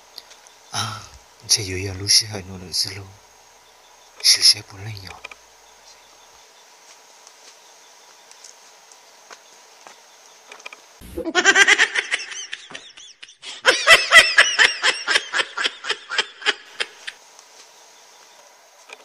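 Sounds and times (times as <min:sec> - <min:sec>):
crickets chirring: 0:00.0 - 0:19.0
person laughing loudly: 0:11.0 - 0:17.2.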